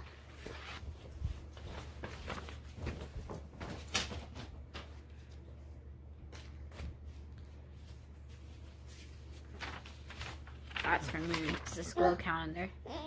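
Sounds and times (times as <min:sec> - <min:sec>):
paper rustling: 0:00.0 - 0:05.5, 0:06.3 - 0:12.2.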